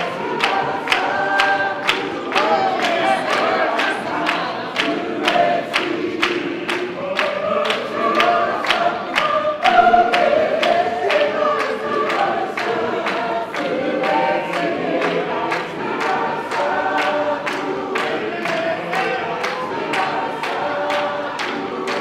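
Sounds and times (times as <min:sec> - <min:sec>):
congregation singing: 0:00.0 - 0:22.0
sharp steady beat: 0:09.6 - 0:13.1.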